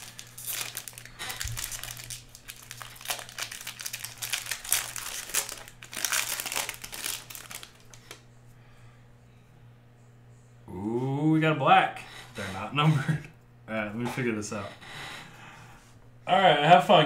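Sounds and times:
card pack wrapper crinkling: 0:00.0 - 0:08.2.

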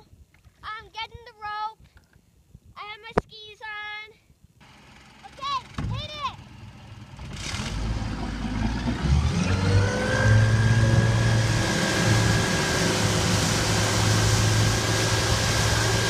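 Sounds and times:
motorboat engine at full throttle: 0:07.0 - 0:16.0
water rushing from wake: 0:07.3 - 0:16.0.

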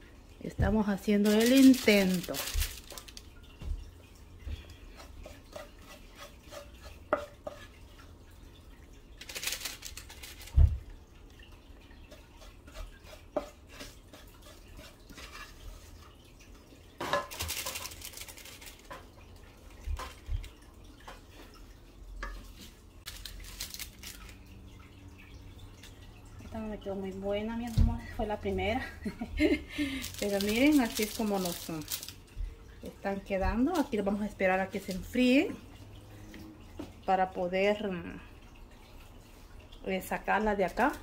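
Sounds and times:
wooden spoon scraping metal pan: 0:04.9 - 0:07.9, 0:12.2 - 0:16.0.

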